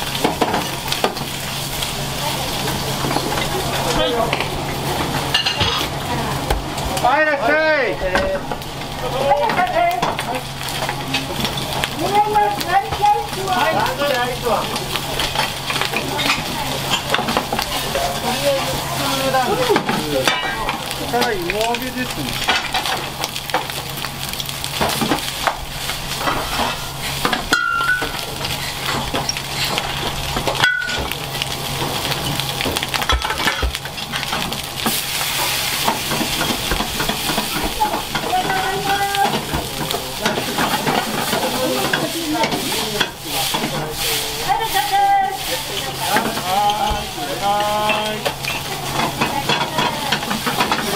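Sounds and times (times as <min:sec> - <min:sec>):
food sizzling in frying pans: 0:00.0 - 0:50.9
pans clattering: 0:04.3 - 0:05.9, 0:24.8 - 0:31.2, 0:35.4 - 0:50.9
utensils scraping pans: 0:24.8 - 0:31.2, 0:33.0 - 0:50.9.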